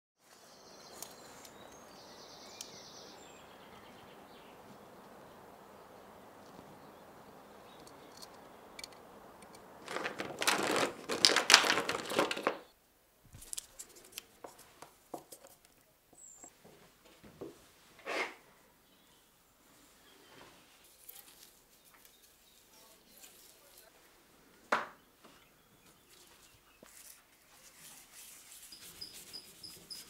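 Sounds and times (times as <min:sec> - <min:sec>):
faint birdsong: 0:00.2 - 0:09.9, 0:15.8 - 0:16.6, 0:18.5 - 0:30.0
loud rustling and crinkling: 0:09.8 - 0:12.7
paint tubes and brushes tapping: 0:09.8 - 0:12.7, 0:13.4 - 0:16.5.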